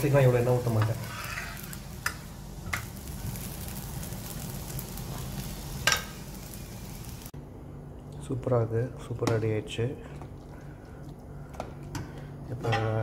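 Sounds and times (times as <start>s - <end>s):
flatbread sizzling in oil: 0.0s - 7.3s.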